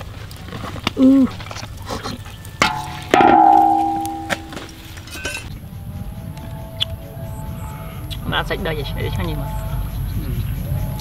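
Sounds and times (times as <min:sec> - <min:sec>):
metal spatula clang: 0:02.6 - 0:05.5.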